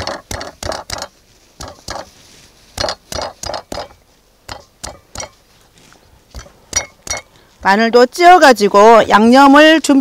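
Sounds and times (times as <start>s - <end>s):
pestle pounding in stone mortar: 0.0s - 2.1s, 2.8s - 5.4s, 6.3s - 7.8s.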